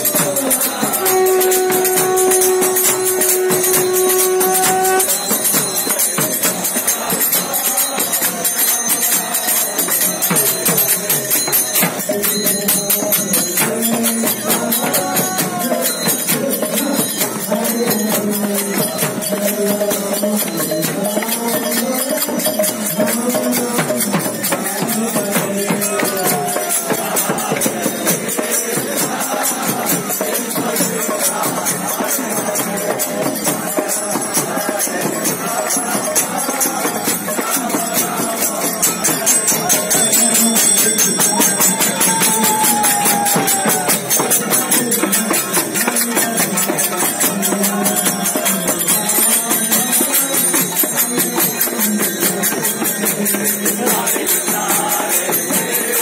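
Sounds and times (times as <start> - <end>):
person chanting into a microphone: 0.0 - 6.0
hand drum: 0.0 - 8.4, 9.2 - 56.0
hand cymbals ringing: 0.0 - 56.0.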